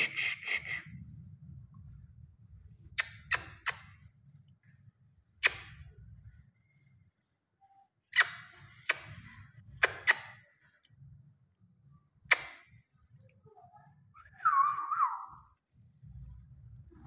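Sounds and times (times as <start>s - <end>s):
wavering whistle: 14.2s - 15.5s.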